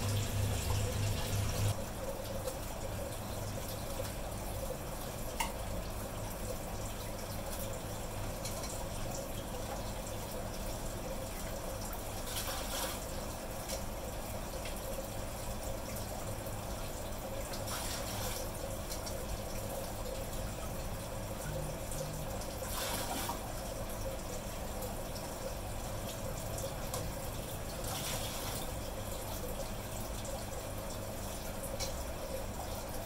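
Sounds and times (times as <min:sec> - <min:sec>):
steady trickle of water: 0:00.0 - 0:33.0.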